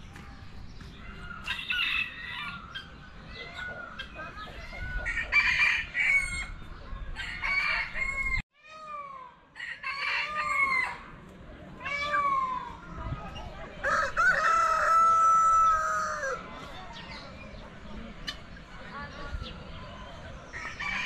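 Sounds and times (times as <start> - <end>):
roosters crowing: 0.9 - 8.4, 9.5 - 11.2, 13.7 - 16.7, 20.5 - 21.0.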